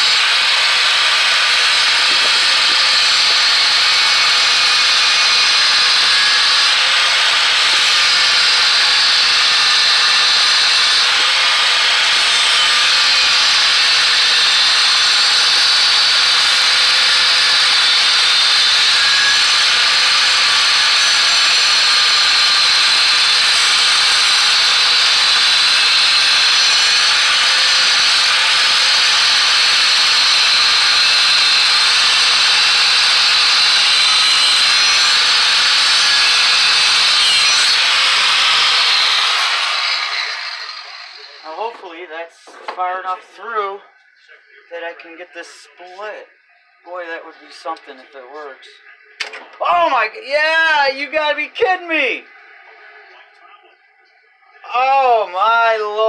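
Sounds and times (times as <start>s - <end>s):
angle grinder cutting steel: 0.0s - 41.8s.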